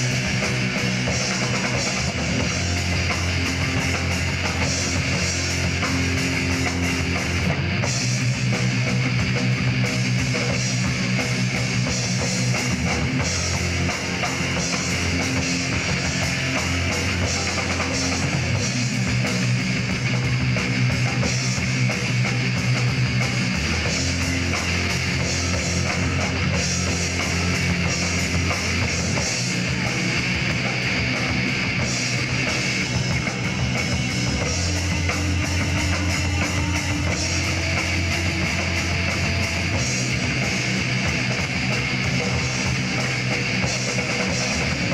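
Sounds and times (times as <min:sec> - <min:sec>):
bass guitar: 0:00.0 - 0:44.9
drum kit: 0:00.0 - 0:44.9
electric guitars: 0:00.0 - 0:44.9.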